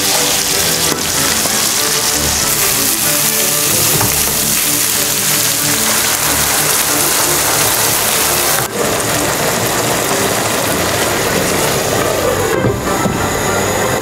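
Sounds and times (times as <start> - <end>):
food sizzling in a frying pan: 0.0 - 13.6
background music: 0.0 - 14.0.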